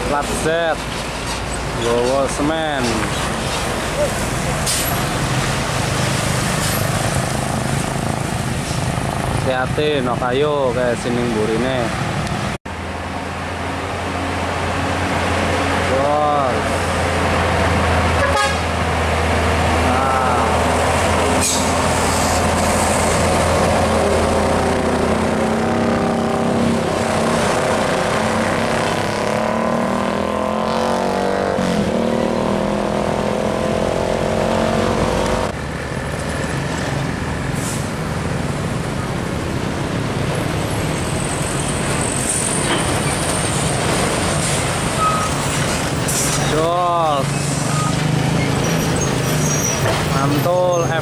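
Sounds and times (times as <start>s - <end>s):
diesel truck engine labouring: 0.0s - 51.0s
traffic noise: 0.0s - 51.0s
high hiss of passing truck: 20.2s - 23.9s, 37.4s - 38.3s.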